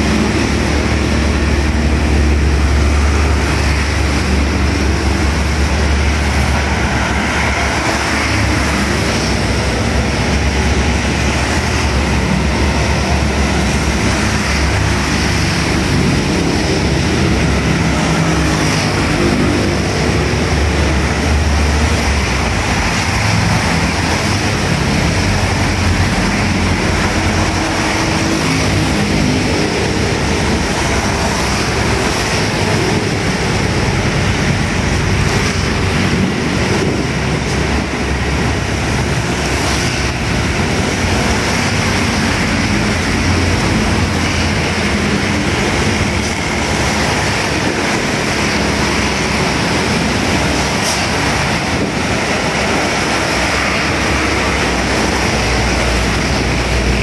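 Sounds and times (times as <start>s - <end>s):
tyres hissing on wet road: 0.0s - 57.0s
vehicle engines rumbling: 0.0s - 57.0s.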